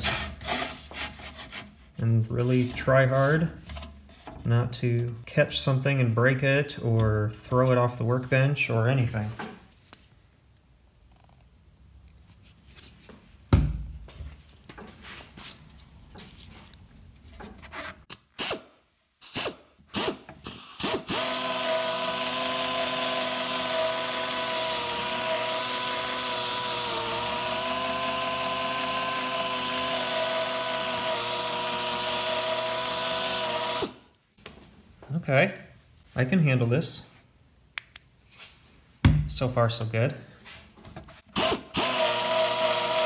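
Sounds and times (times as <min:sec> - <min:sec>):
air polisher whirring: 0:41.4 - 0:43.0.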